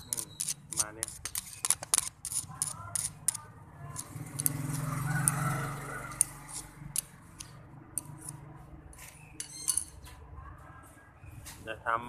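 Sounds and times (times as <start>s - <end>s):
screwdriver scraping metal: 0.0s - 5.5s, 6.1s - 8.4s
ratchet clicks: 4.0s - 5.4s.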